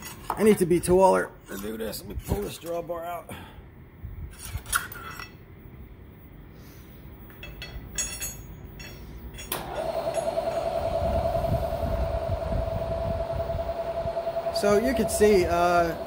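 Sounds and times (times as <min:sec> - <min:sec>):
light metallic clinks: 0:07.3 - 0:09.6
mill spindle motor humming: 0:09.6 - 0:16.0.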